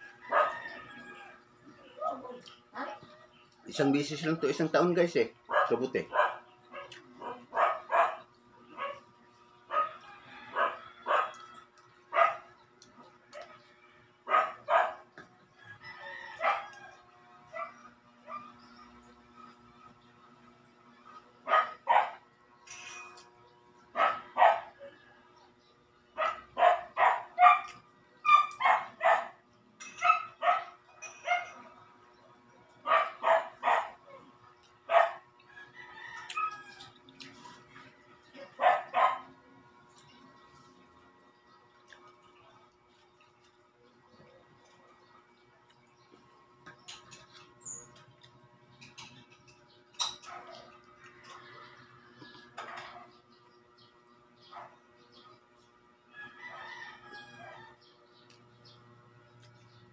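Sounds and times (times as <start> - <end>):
dog barking: 0.2 - 0.6, 5.5 - 9.1, 9.7 - 11.5, 12.1 - 12.5, 14.3 - 15.1, 16.4 - 16.7, 17.5 - 18.6, 21.4 - 22.2, 24.0 - 24.8, 26.2 - 29.4, 30.0 - 31.7, 32.8 - 34.2, 34.9 - 35.3, 38.4 - 39.3, 50.2 - 50.8, 54.5 - 54.8.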